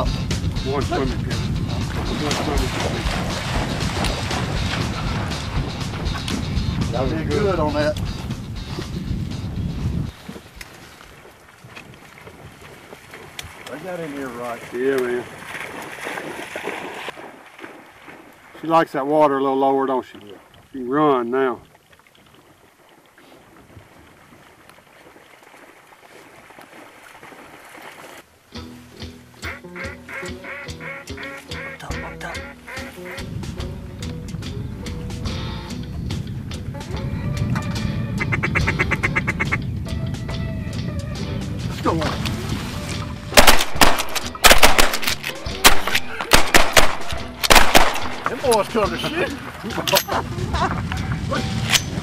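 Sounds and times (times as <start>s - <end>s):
wind noise: 0.0s - 18.3s, 33.0s - 52.0s
dog splashing through water: 1.9s - 6.4s, 10.3s - 18.6s, 21.7s - 28.3s
shotgun blasts: 43.4s - 48.5s.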